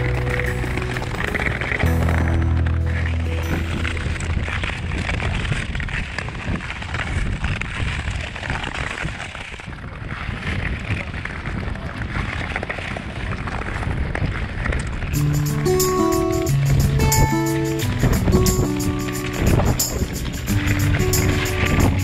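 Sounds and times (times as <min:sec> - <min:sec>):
skate blades scraping ice: 0:00.0 - 0:16.4
wind buffeting microphone: 0:00.0 - 0:22.0.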